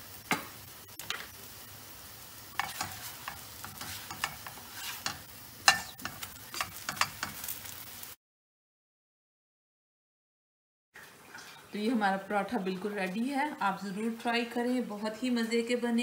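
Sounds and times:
flatbread sizzling in oil: 0.0 - 8.2
spatula scraping and tapping pan: 2.6 - 7.7.

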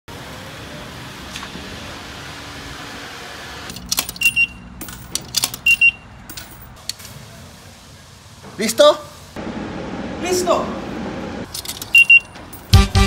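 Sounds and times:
coins clinking into coin box: 3.7 - 6.8, 11.5 - 12.8
machine double beep: 4.2 - 4.6, 5.6 - 6.0, 11.9 - 12.4.

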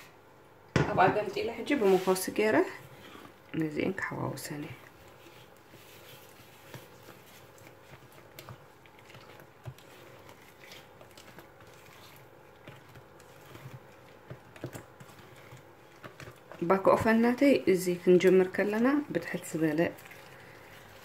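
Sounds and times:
spatula scraping batter in bowl: 1.3 - 21.0
spatula tapping bowl: 6.6 - 19.6.

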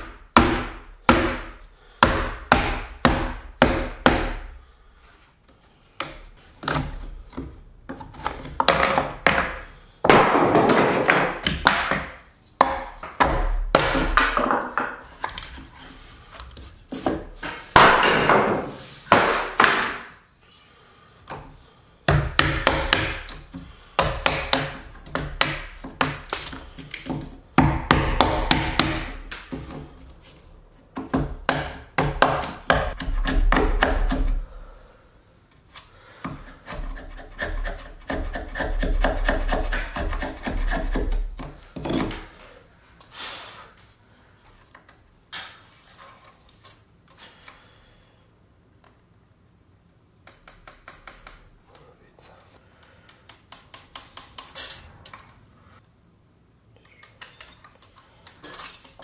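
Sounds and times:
tools chopping wood: 0.0 - 4.5, 10.1 - 14.9, 17.1 - 20.1, 22.1 - 29.9, 31.0 - 34.4.

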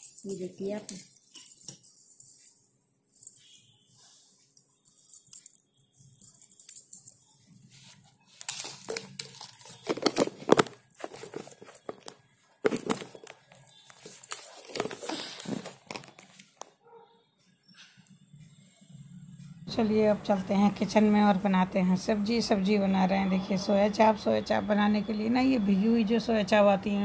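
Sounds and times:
anklet bells jingling: 0.0 - 4.0, 4.6 - 7.6
cloth and jewellery rustling: 0.0 - 16.6.

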